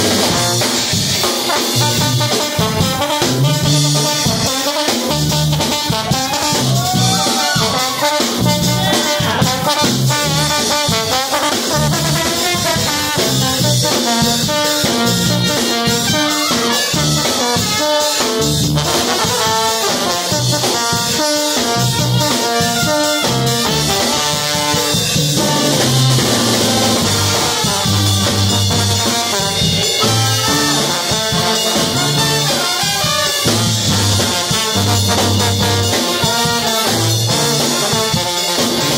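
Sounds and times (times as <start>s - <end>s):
brass band playing: 0.0s - 38.9s
sousaphone bass line: 1.8s - 4.5s, 5.1s - 11.0s, 23.2s - 38.0s.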